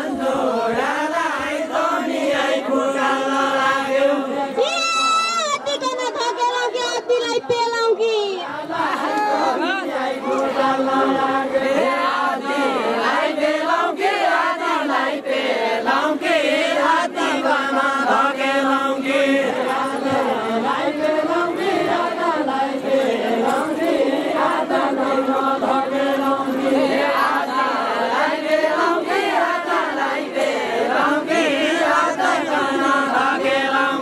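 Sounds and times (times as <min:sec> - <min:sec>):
group singing folk song: 0:00.0 - 0:05.7, 0:08.4 - 0:34.0.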